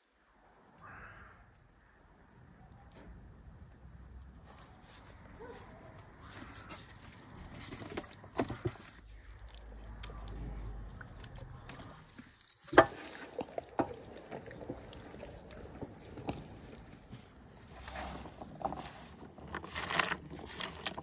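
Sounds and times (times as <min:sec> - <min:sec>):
wet slapping and squelching meat: 0:08.8 - 0:17.5.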